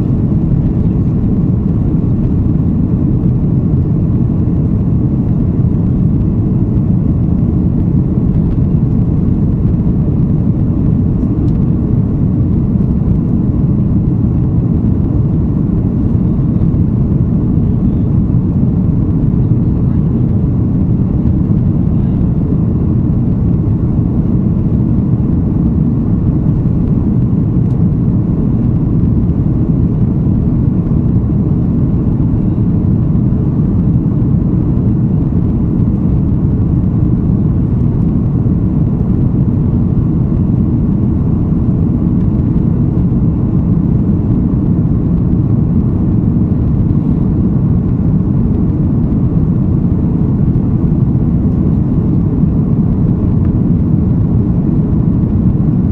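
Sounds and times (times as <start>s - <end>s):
faint steady whine: 0.0s - 55.9s
jet engines roaring in cabin: 0.0s - 55.9s.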